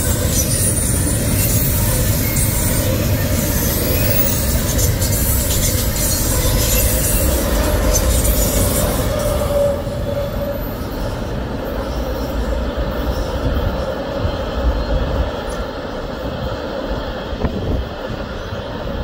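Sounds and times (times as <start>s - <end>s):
train wheel squeal: 0.0s - 19.0s
train wheels rumbling on rail: 0.0s - 19.0s.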